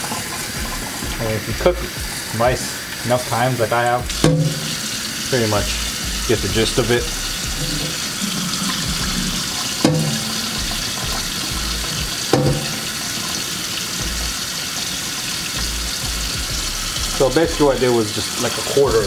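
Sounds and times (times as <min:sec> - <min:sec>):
faucet running into metal sink: 0:00.0 - 0:19.0
rice rinsed by hand: 0:00.0 - 0:19.0
sharp knocks: 0:08.8 - 0:12.9.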